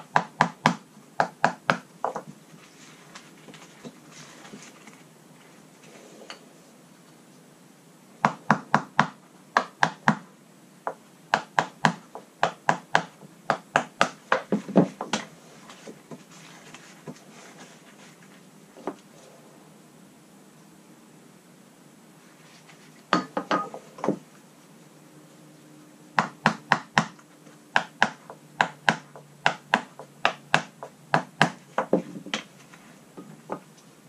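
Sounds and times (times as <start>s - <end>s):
hand tool knocking and tapping: 23.1s - 24.2s, 26.2s - 27.2s, 27.8s - 32.5s.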